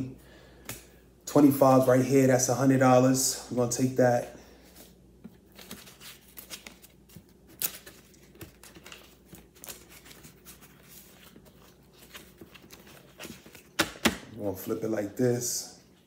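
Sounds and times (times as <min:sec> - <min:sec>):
banknotes rustling: 0:05.4 - 0:13.8.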